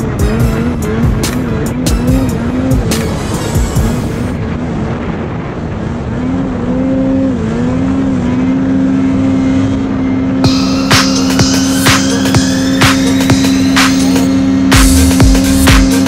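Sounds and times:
snowmobile engine running hard: 0.0s - 16.0s.

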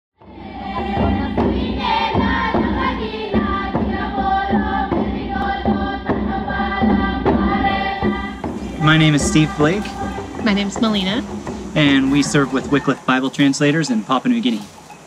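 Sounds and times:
background music with choir singing: 0.2s - 15.0s.

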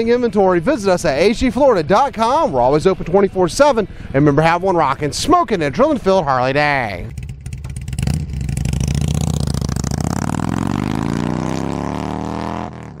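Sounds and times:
motorcycle engine revving: 7.1s - 13.0s.

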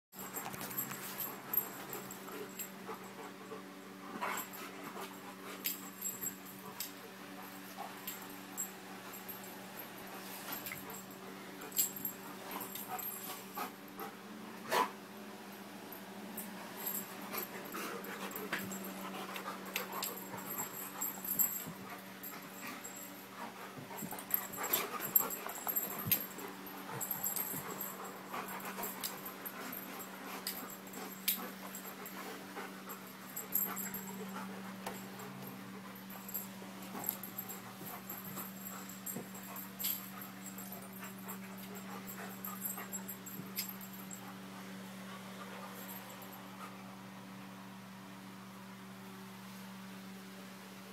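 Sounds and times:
dogs panting: 0.2s - 15.0s, 16.4s - 46.9s
dogs scuffling: 16.4s - 44.2s.

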